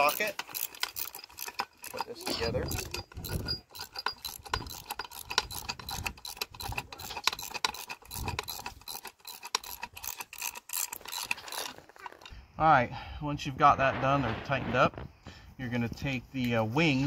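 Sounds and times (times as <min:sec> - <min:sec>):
ratchet wrench clicking: 0:00.0 - 0:11.8.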